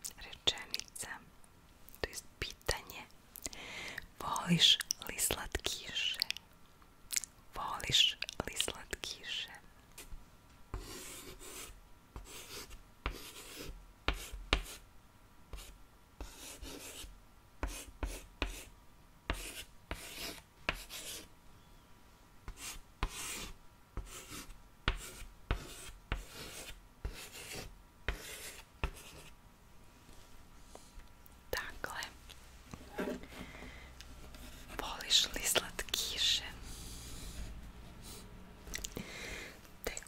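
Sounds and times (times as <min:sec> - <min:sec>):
pen scratching on paper: 0:10.7 - 0:14.8, 0:15.5 - 0:18.7, 0:19.3 - 0:21.3, 0:22.5 - 0:29.3.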